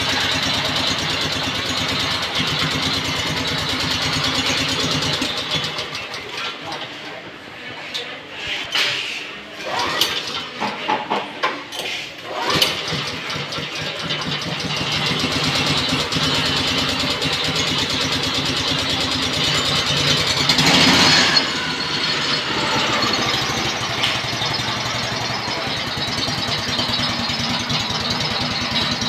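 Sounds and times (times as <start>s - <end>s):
small engine running: 9.6s - 10.5s, 12.2s - 29.0s
recoil cord pull-start: 9.6s - 10.6s, 12.3s - 15.0s.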